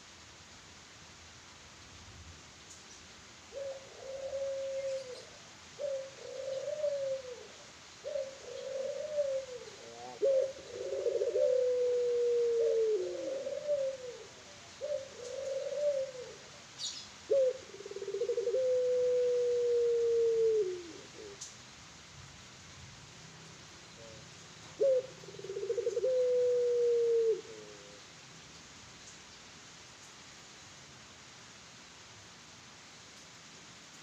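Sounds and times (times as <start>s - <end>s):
dove cooing: 3.5s - 21.5s, 24.0s - 28.0s.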